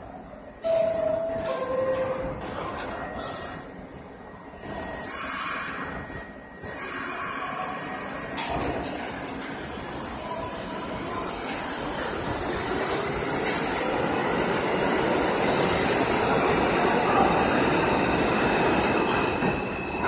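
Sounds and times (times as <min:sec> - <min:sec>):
subway train pulling out: 0:00.0 - 0:20.0
air hiss from train brakes: 0:04.9 - 0:08.3.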